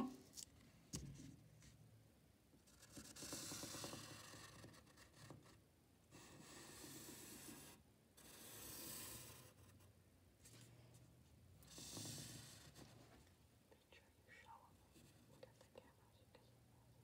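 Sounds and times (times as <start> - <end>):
pencil scratching on paper: 2.7 - 9.9, 11.6 - 13.1.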